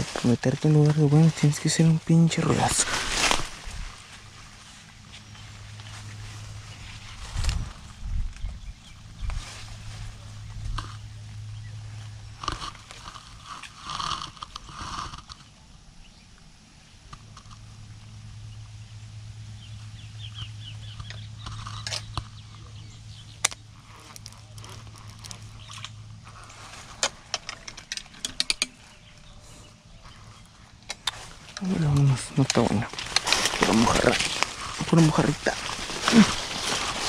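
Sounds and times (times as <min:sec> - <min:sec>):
twigs crackling and snapping: 0:00.0 - 0:08.6, 0:11.9 - 0:15.6, 0:20.4 - 0:29.4, 0:30.0 - 0:37.0.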